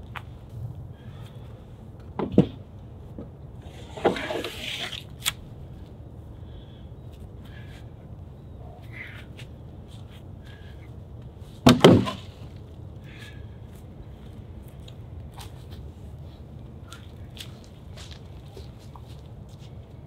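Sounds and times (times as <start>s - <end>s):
log knocking onto woodpile: 11.6s - 12.3s
footsteps on dry leaves: 13.2s - 19.8s.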